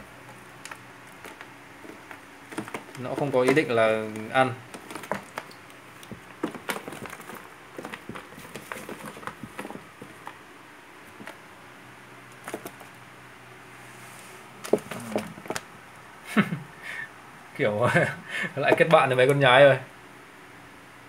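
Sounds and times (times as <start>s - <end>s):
clicks and scrapes on plastic tub: 0.2s - 10.4s, 11.1s - 11.4s, 12.3s - 13.0s, 14.6s - 15.7s, 18.6s - 19.2s.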